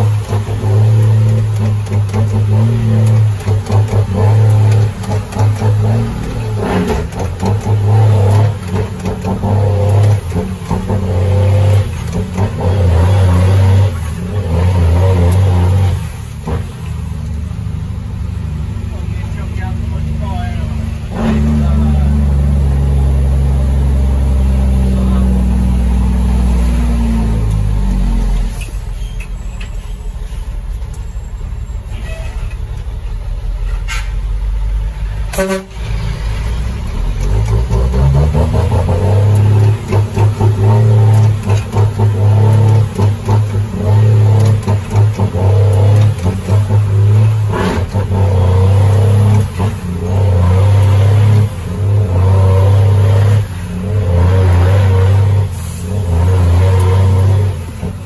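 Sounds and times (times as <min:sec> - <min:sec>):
diesel truck engine pulling: 0:00.0 - 0:58.0
truck horn toot: 0:31.1 - 0:32.6, 0:35.3 - 0:36.1.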